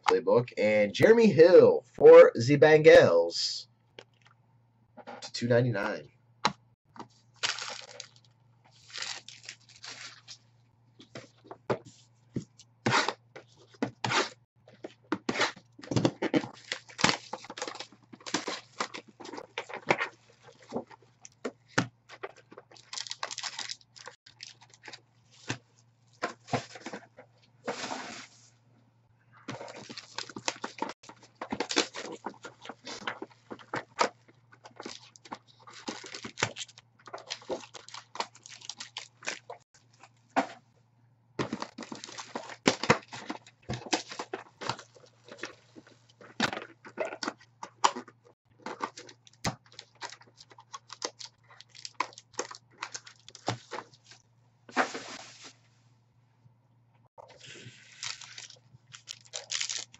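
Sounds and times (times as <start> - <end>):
plastic wrap crinkling and tearing: 7.4 - 10.4, 22.1 - 25.4, 29.6 - 39.6, 48.6 - 53.8, 57.3 - 59.9
cardboard boxes handled: 54.7 - 55.6.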